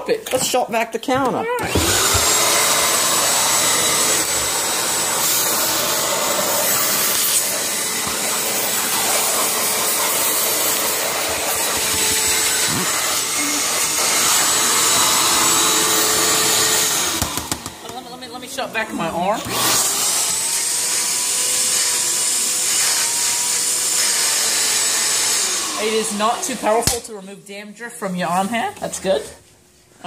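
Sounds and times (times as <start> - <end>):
shop vac motor running: 1.6 - 27.0.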